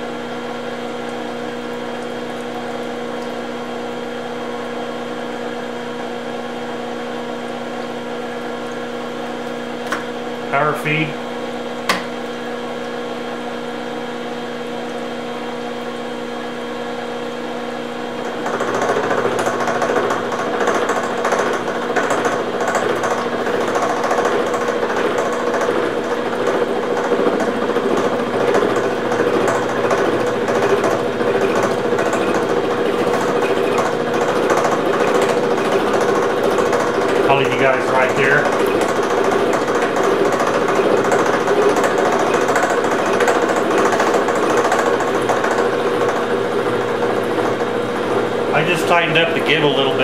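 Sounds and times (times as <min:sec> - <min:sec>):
milling machine running: 0:00.0 - 0:50.0.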